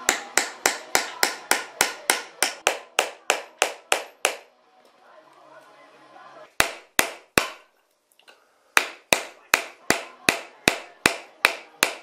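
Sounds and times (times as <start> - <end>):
hammer strikes: 0.0 - 4.5, 6.6 - 7.7, 8.8 - 12.0.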